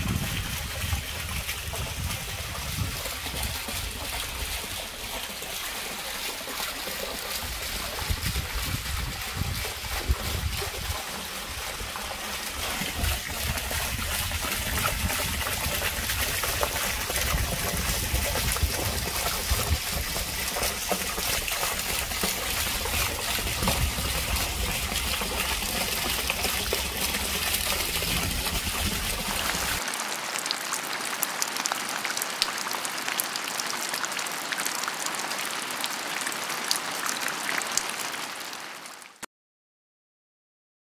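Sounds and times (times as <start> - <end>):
fountain jet splashing: 0.0 - 38.7
water running and trickling: 0.0 - 39.0.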